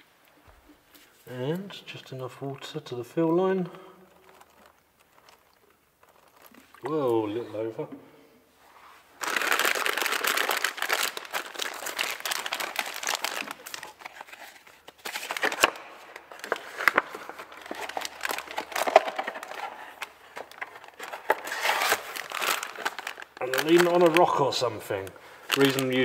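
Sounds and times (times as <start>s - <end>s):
plastic sleeve crinkling: 4.1s - 7.2s, 8.6s - 26.0s.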